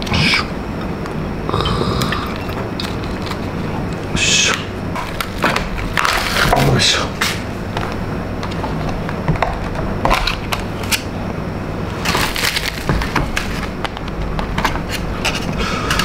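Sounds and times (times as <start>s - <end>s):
plastic trays crinkling: 5.0s - 7.4s, 11.9s - 16.0s.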